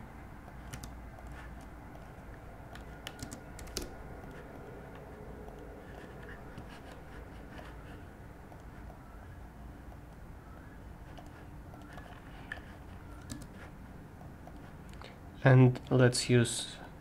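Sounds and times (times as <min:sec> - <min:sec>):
steady low hum: 0:00.0 - 0:17.0
keyboard and mouse clicks: 0:00.4 - 0:07.8, 0:08.4 - 0:09.1, 0:11.1 - 0:15.1.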